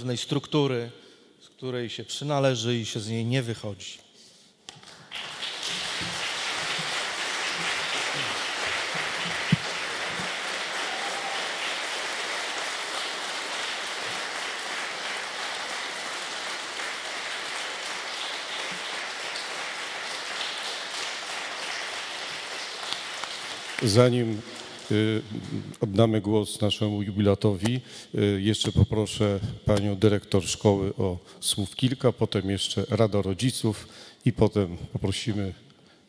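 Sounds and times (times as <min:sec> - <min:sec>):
audience applauding: 0:04.8 - 0:25.6.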